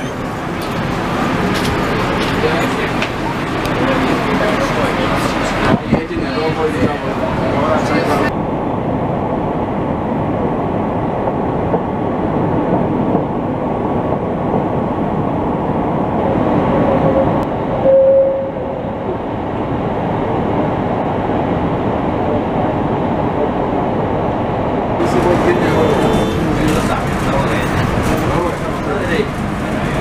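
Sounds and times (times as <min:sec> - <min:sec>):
tram wheels rumbling on rails: 0:00.0 - 0:30.0
short steady tone: 0:17.1 - 0:18.8.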